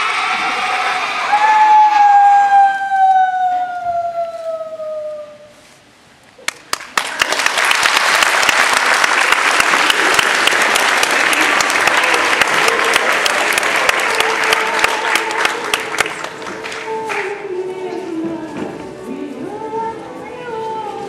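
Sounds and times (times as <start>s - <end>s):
audience clapping: 6.4s - 17.5s.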